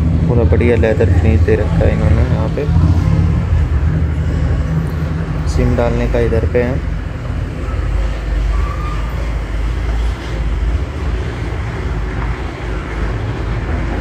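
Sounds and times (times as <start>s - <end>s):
low background rumble: 0.0s - 8.6s.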